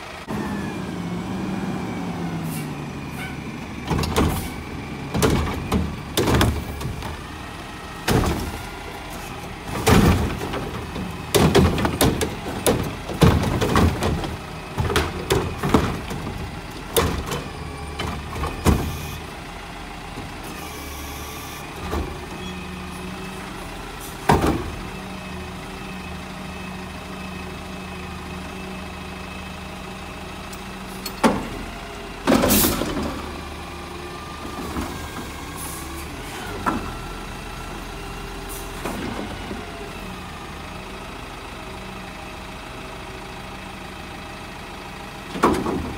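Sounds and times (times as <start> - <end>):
engine and hydraulics humming: 0.0 - 45.9
loud bangs and knocks: 5.1 - 7.2, 9.7 - 18.2
load crashing into hopper: 8.0 - 8.8, 9.6 - 19.0, 32.3 - 33.4.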